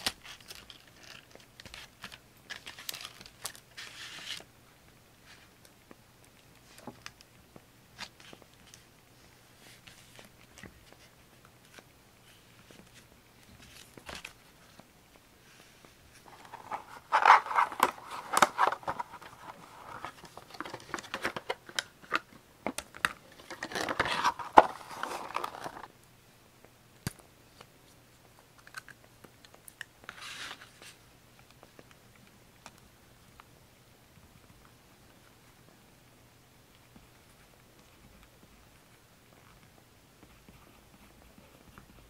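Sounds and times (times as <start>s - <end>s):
paper rustling and crinkling: 0.0s - 4.5s, 9.5s - 25.9s, 30.0s - 31.0s.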